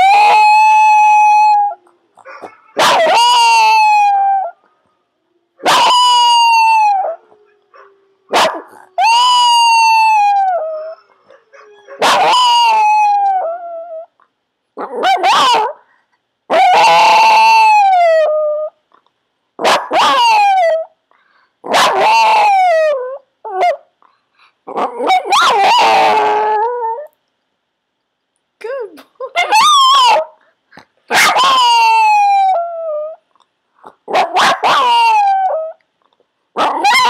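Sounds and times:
dog howling: 0.0s - 14.1s, 16.5s - 18.8s, 19.6s - 20.9s, 21.7s - 23.8s, 24.7s - 27.1s, 29.4s - 30.4s, 31.1s - 33.2s, 34.1s - 35.8s, 36.6s - 37.0s.

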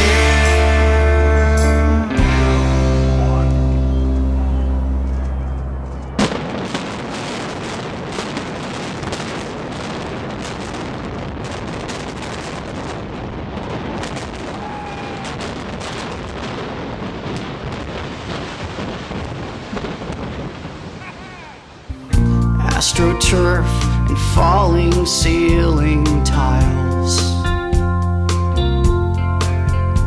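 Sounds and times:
rapid crackle of explosive charges: 2.3s - 24.0s
rumble of collapsing structure: 3.7s - 21.1s
sharp explosive bang: 6.0s - 13.0s.

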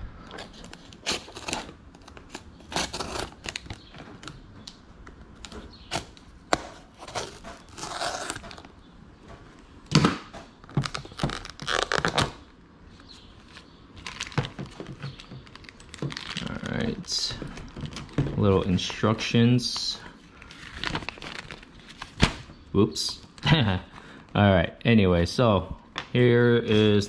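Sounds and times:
plastic crackling: 0.2s - 8.8s, 10.6s - 22.5s
scissors cutting plastic: 0.4s - 4.4s, 5.4s - 8.7s.

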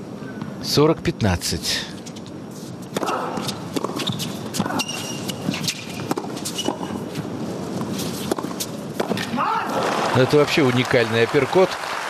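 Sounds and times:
shoe squeaks on court: 2.0s - 7.1s
racket striking tennis ball: 2.9s - 9.4s
ball bouncing on court: 3.0s - 7.0s.

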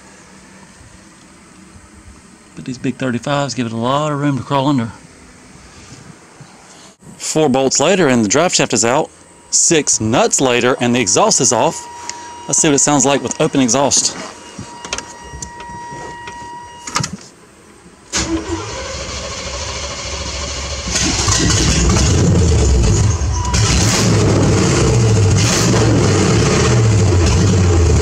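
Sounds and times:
warning chime tone: 9.4s - 16.9s
engine cranking: 18.1s - 28.0s
open-exhaust engine revving: 18.1s - 28.0s.

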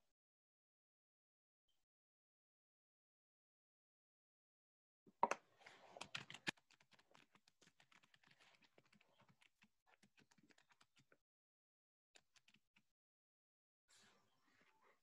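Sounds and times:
faint keyboard typing: 5.2s - 11.2s, 12.2s - 12.8s.

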